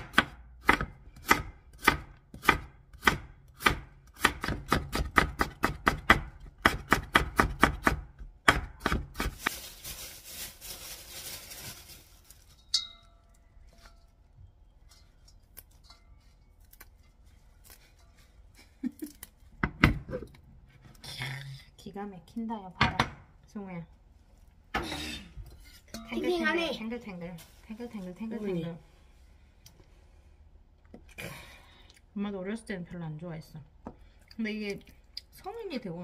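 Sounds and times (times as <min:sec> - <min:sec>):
knife chopping carrot on board: 0:00.0 - 0:09.3
handling leafy greens: 0:09.2 - 0:19.4, 0:26.7 - 0:28.8
ringing metal clink: 0:12.6 - 0:13.5.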